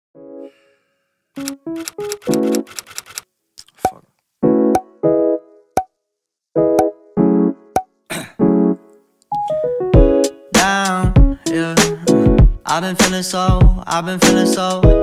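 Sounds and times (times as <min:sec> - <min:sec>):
sharp clicks: 0:01.4 - 0:04.0
keyboard chord stabs: 0:08.4 - 0:12.6
deep bass beat: 0:11.0 - 0:11.4, 0:13.5 - 0:13.9.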